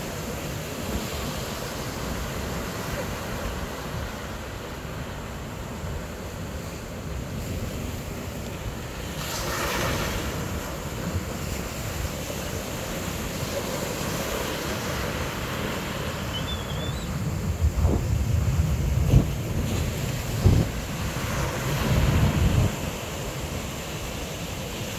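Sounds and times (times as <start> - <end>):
choppy water and waves: 0.0 - 24.9
wind buffeting microphone: 16.6 - 23.0.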